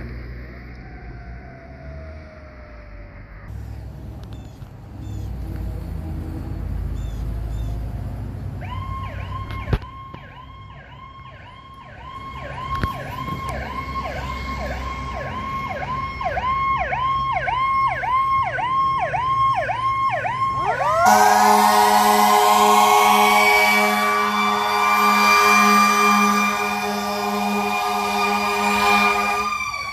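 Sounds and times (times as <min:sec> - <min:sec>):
fire engine siren wailing: 0:00.4 - 0:03.5, 0:08.6 - 0:29.9
siren winding up: 0:19.8 - 0:29.9
loud horn blast: 0:20.8 - 0:29.9.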